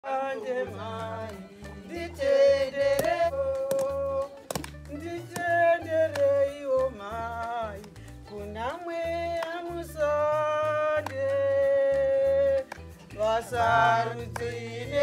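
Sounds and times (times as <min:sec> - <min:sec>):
women singing together: 0:00.0 - 0:04.3, 0:08.6 - 0:15.0.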